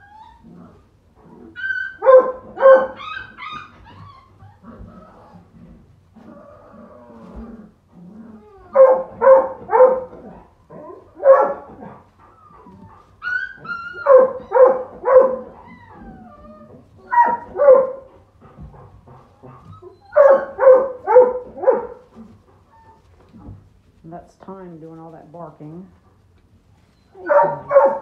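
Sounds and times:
puppies whining: 0.0 - 24.0, 26.2 - 28.0
puppies barking: 1.6 - 4.4, 8.7 - 12.0, 12.6 - 16.4, 17.0 - 22.2, 27.2 - 28.0.

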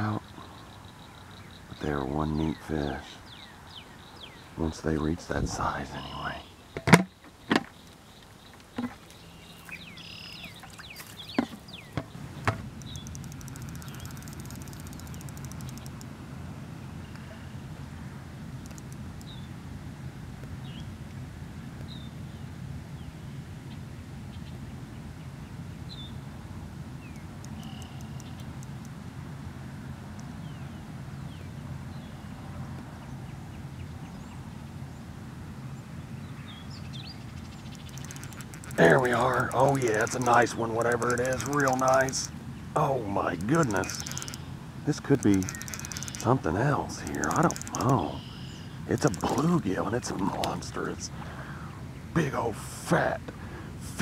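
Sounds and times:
bird chirps: 0.0 - 16.0, 27.0 - 28.8, 36.2 - 51.0
low steady hum: 0.0 - 54.0
fast faint ticks: 9.7 - 16.2, 18.6 - 19.4, 27.1 - 29.0, 37.5 - 42.3, 43.3 - 48.2, 48.9 - 49.7.

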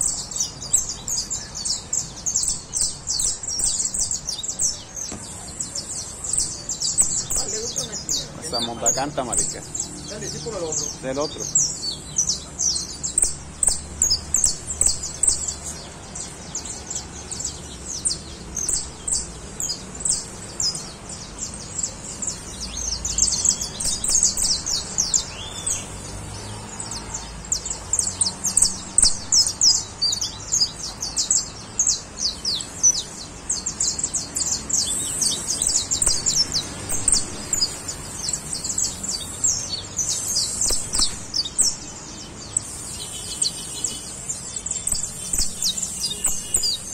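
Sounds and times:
finches chirping: 0.0 - 46.9.

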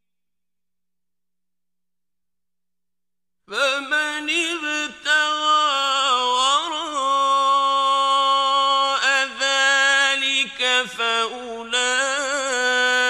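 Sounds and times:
man reciting in melodic chant: 3.5 - 13.0.

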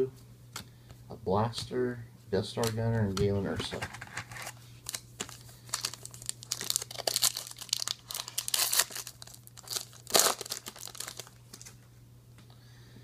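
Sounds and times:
plastic wrapper crinkling: 3.7 - 11.8.

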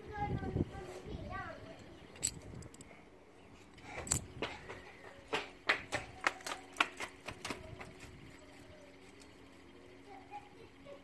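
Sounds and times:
fidget spinner metallic clicks: 1.7 - 2.9.

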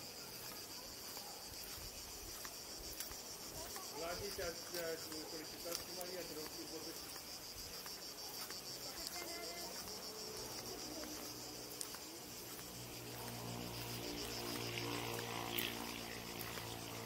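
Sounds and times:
insects chirring: 0.0 - 17.0.

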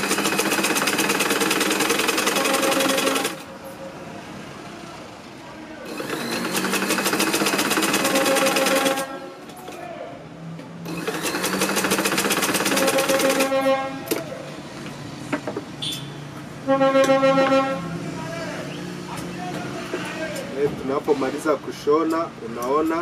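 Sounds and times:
sewing machine motor hum: 0.0 - 3.5, 5.9 - 9.1, 10.8 - 13.6
sewing machine stitching: 0.0 - 3.5, 5.9 - 9.1, 10.8 - 13.6.

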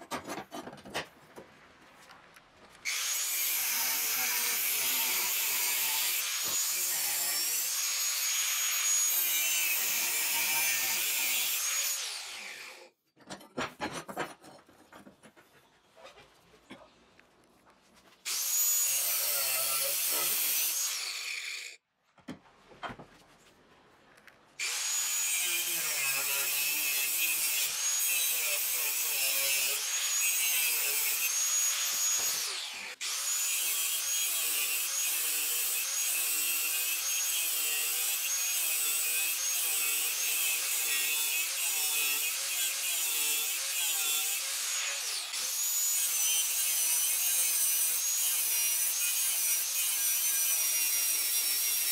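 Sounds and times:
saw cutting steel: 2.8 - 13.0, 18.2 - 21.8, 24.6 - 51.9.

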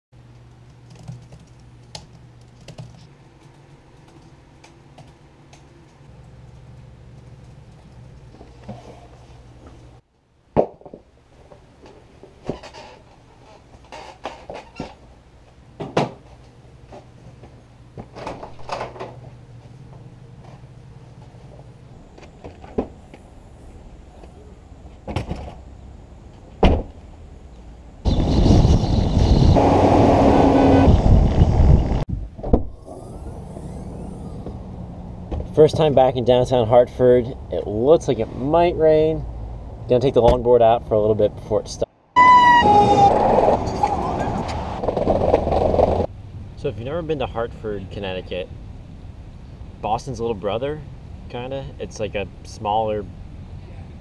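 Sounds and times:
laptop keyboard typing: 0.5 - 5.2
steady low hum: 14.8 - 41.8, 43.5 - 54.0.

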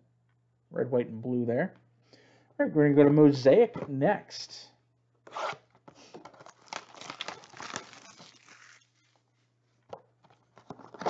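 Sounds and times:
packaging crinkling and tearing: 6.2 - 9.2.

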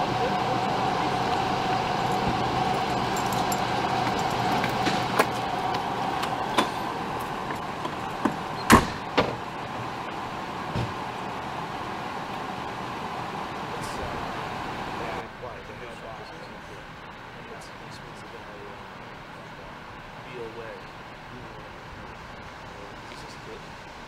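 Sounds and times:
vehicles idling hum: 0.0 - 24.0
sharp knocks: 6.2 - 9.4, 10.7 - 11.0.

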